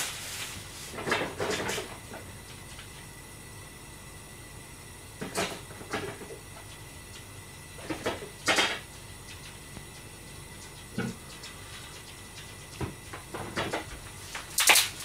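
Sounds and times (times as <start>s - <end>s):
faint steady hum: 0.0s - 15.0s
kitchen knocks and clatters: 0.9s - 2.2s, 5.2s - 6.7s, 7.8s - 8.9s, 12.7s - 14.0s.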